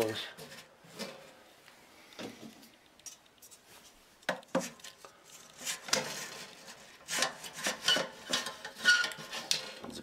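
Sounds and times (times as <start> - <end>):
knocks and scrapes on metal pot: 5.6 - 9.9.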